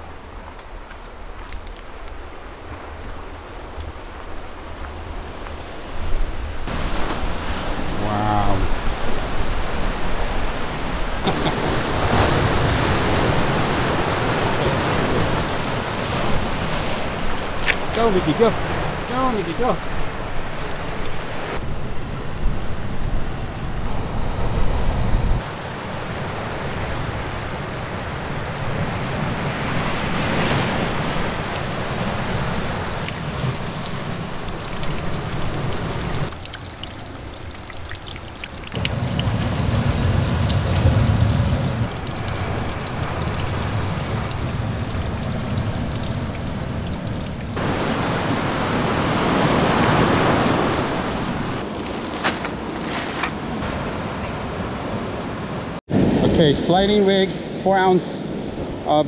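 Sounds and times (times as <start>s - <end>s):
surf breaking on rocks: 38.8s - 54.7s.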